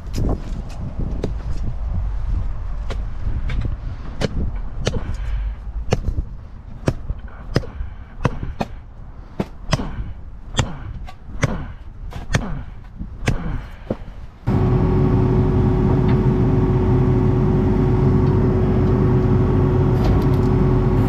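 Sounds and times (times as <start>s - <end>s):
machete chopping into roots: 9.4s - 13.7s.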